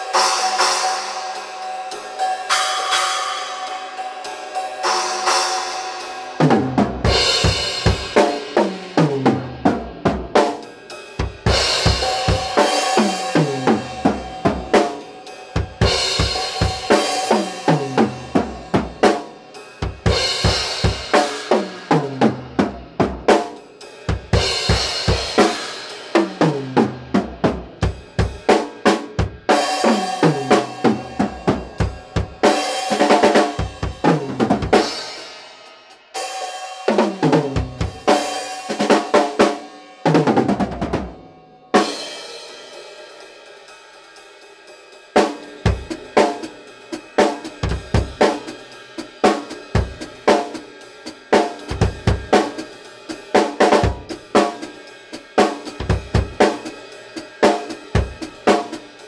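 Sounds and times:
drum kit grooves and tom fills: 0:00.0 - 0:59.0
cymbal crash: 0:10.8 - 0:22.2.

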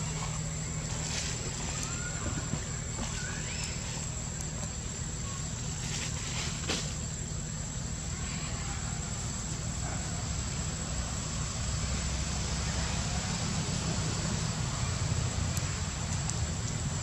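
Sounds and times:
constant low rumble: 0:00.0 - 0:17.0.

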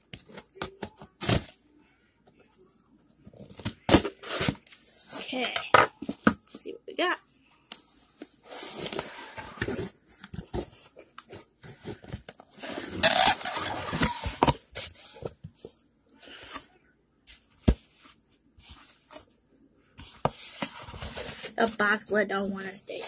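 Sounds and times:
cardboard scraping and rustling: 0:08.4 - 0:15.3, 0:20.0 - 0:21.8
cardboard tearing: 0:12.7 - 0:14.6.

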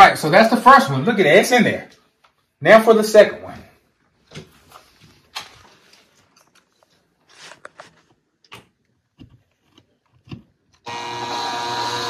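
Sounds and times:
cordless drill running: 0:10.8 - 0:12.0.

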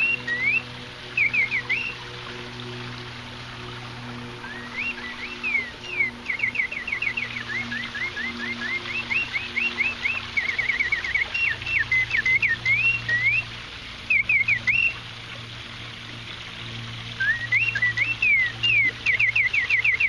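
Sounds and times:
mechanical birdsong whistle: 0:00.0 - 0:02.2, 0:04.3 - 0:15.0, 0:17.2 - 0:20.0
low steady hum: 0:00.0 - 0:20.0.

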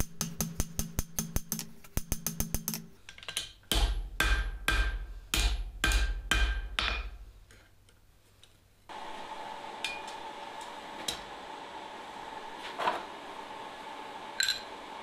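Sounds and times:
hammer striking steel on anvil: 0:00.0 - 0:07.2, 0:09.8 - 0:10.2.

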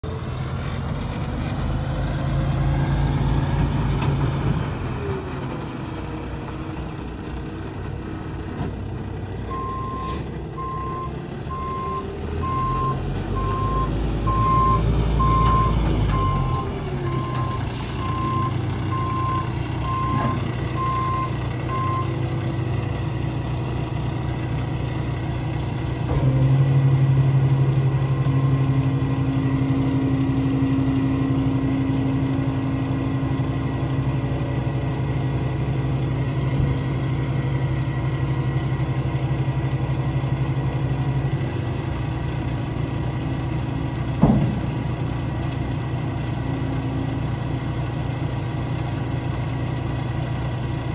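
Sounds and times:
diesel truck engine revving: 0:00.0 - 0:50.9
reversing alarm beeping: 0:09.5 - 0:22.2.

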